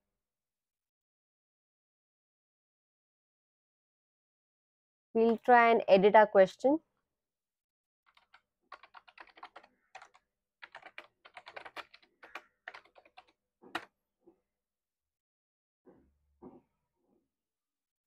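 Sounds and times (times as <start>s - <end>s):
loud keyboard click: 8.1s - 13.9s
typing on computer keyboard: 8.1s - 13.9s.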